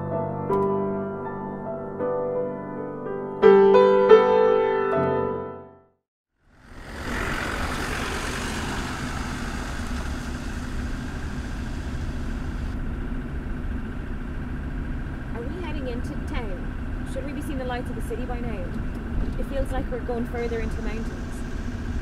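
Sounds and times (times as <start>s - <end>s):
piano music: 0.0s - 6.0s
car running: 6.4s - 22.0s.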